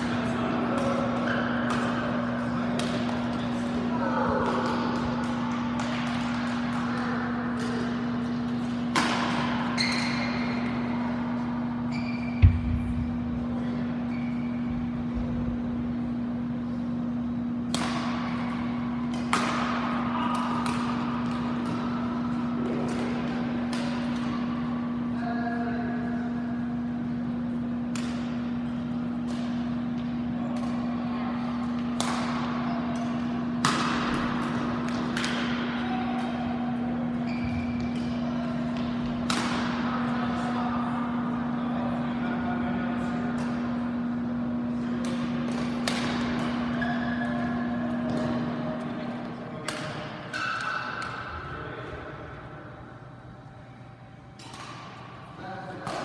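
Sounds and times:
rackets striking shuttlecock: 0.0s - 13.2s, 17.0s - 25.0s, 26.8s - 31.0s, 31.6s - 40.5s, 43.3s - 51.6s, 54.2s - 56.0s
steady low hum: 0.0s - 56.0s.

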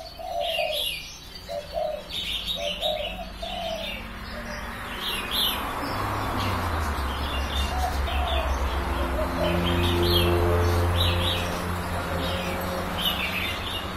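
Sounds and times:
dove cooing: 0.0s - 5.3s, 7.3s - 11.6s
small birds chirping: 0.0s - 13.9s.

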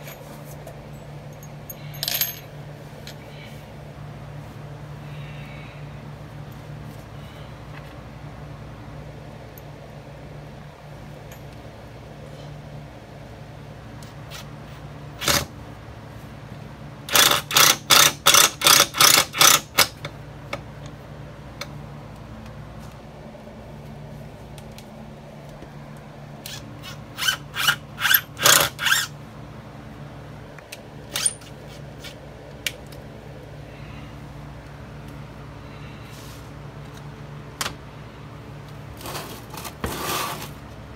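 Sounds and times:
impact driver driving screws: 26.5s - 29.1s.

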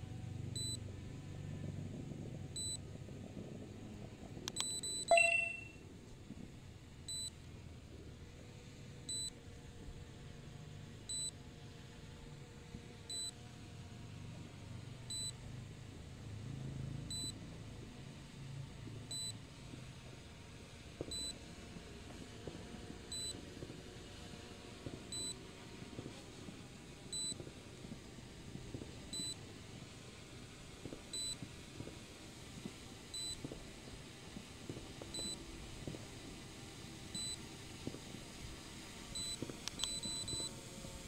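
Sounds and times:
faint low rumble: 0.0s - 11.4s, 13.9s - 19.5s, 21.1s - 21.4s, 27.1s - 32.0s, 32.6s - 34.0s, 37.1s - 37.4s, 38.4s - 40.5s
short high electronic beep: 4.6s - 5.8s.

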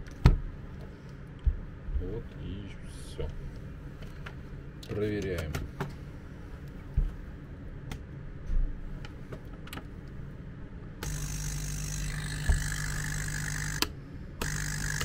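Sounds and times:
air pump humming and hissing: 11.0s - 15.0s.

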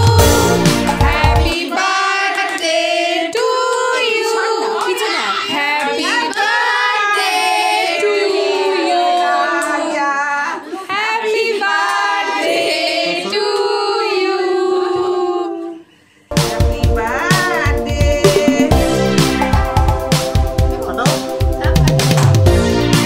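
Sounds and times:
recorded music with a beat: 0.0s - 1.6s, 16.3s - 23.0s
women and children singing: 0.0s - 15.9s.

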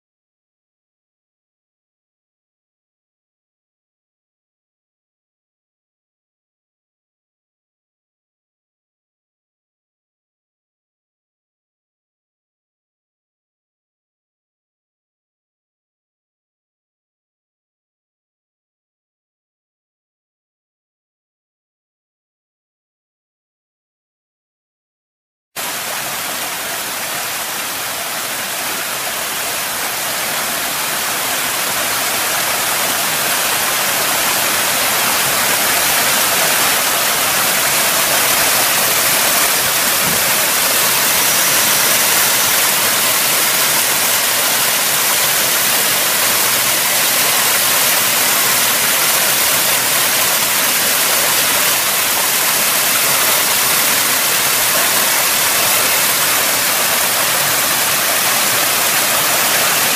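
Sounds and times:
waterfall splashing into pool: 25.6s - 59.9s.

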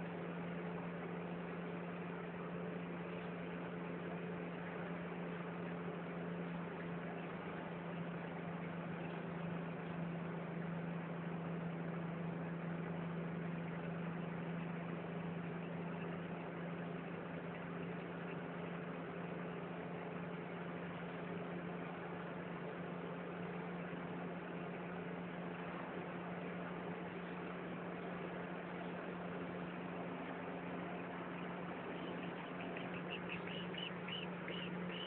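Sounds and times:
car engine drone: 21.9s - 35.0s.

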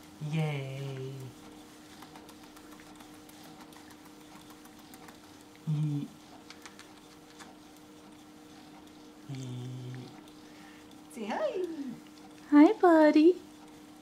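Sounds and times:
faint hum: 0.0s - 7.6s, 9.2s - 12.8s.

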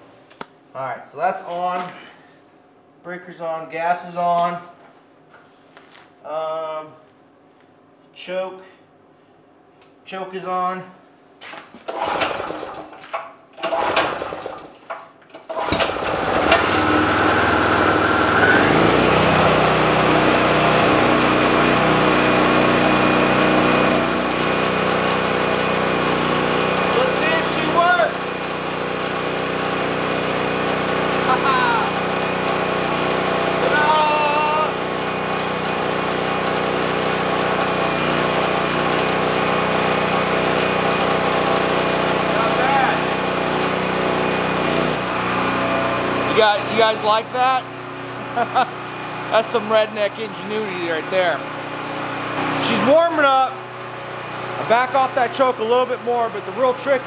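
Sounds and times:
generator engine running: 11.8s - 57.0s
recoil starter tugs: 11.8s - 57.0s.

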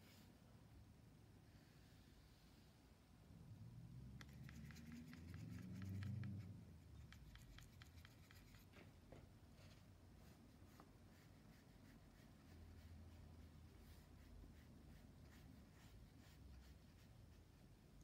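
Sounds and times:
paintbrush scrubbing in paint pans: 4.2s - 8.9s, 9.5s - 18.0s.

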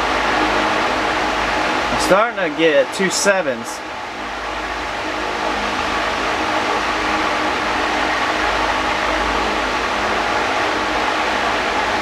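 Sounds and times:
machine hum with hiss: 0.0s - 12.0s.

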